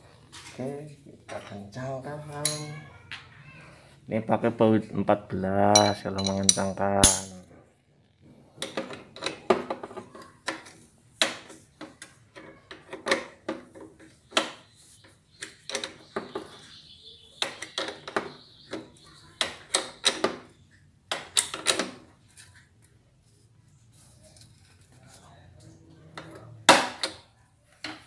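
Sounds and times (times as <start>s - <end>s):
wrench clinking on metal: 2.4s - 2.8s, 5.8s - 7.4s.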